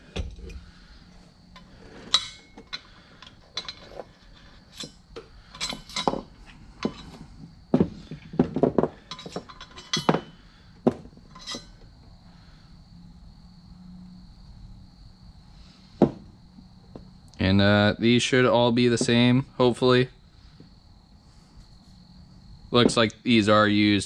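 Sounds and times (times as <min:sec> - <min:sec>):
metal parts clinking: 0:01.6 - 0:07.2, 0:08.4 - 0:10.4, 0:11.3 - 0:11.8
knocks on workbench: 0:16.0 - 0:16.2.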